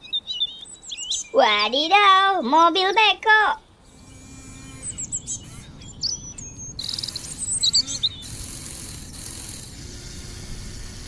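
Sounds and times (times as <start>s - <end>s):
small birds chirping and trilling: 0.0s - 3.0s, 3.6s - 10.4s
faint hum: 0.7s - 11.0s
steady hiss: 3.8s - 11.0s.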